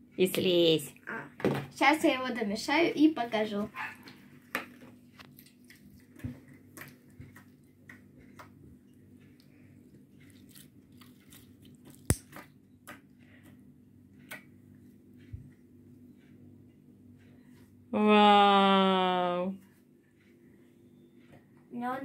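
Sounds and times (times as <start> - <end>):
slime squishing by hand: 10.2 - 12.5.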